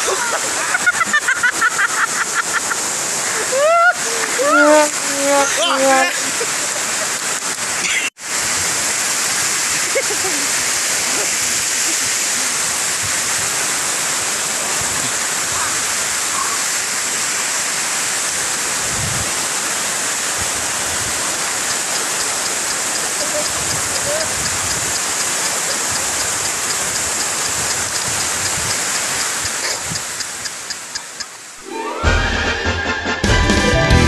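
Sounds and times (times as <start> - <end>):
waterfall rushing: 0.0 - 32.3
faint voices: 4.0 - 6.6.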